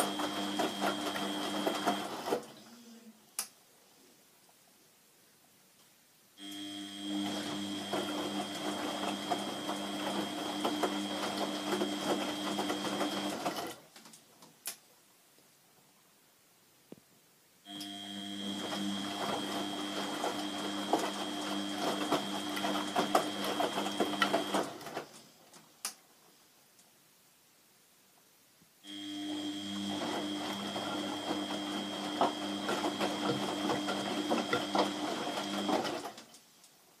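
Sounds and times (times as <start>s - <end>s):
washing machine motor whine: 0.0s - 2.4s, 6.4s - 13.7s, 17.7s - 24.9s, 28.9s - 36.2s
water and laundry sloshing: 0.0s - 2.6s, 7.2s - 13.9s, 18.4s - 25.2s, 29.7s - 36.3s.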